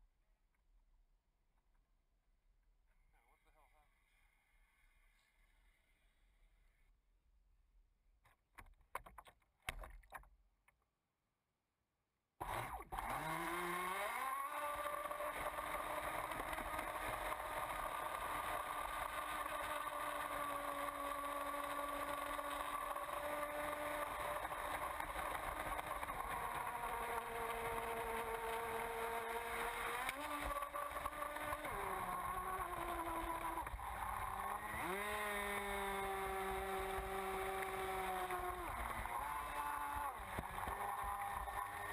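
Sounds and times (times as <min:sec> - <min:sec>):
electric motor whine: 0:12.4 - 0:41.9.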